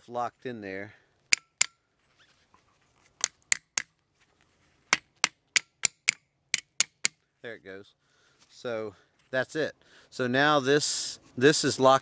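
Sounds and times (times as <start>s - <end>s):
hammer striking steel: 5.2s - 7.2s.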